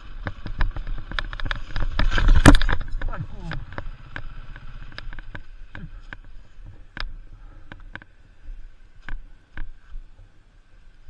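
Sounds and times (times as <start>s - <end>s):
motorcycle engine idling: 2.9s - 8.0s.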